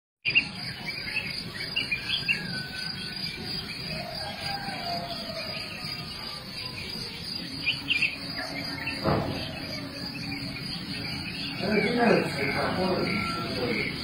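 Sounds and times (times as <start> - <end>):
bird chirps: 0.2 - 14.0
insects chirping: 0.2 - 14.0
knock: 9.0 - 9.5.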